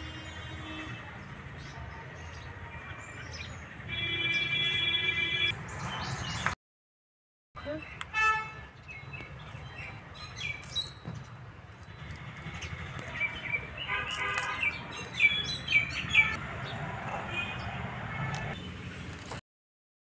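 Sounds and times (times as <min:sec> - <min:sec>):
small birds chirping: 0:08.8 - 0:16.8.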